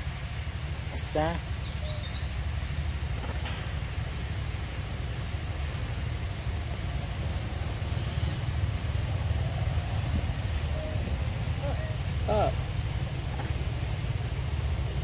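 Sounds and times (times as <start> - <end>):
low outdoor rumble: 0.0 - 15.0
faint bird chirps: 1.6 - 2.4.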